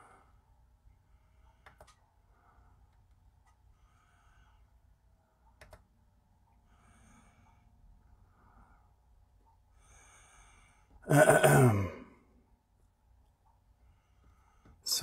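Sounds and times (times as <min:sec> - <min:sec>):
person sighing loudly: 0:11.0 - 0:12.2.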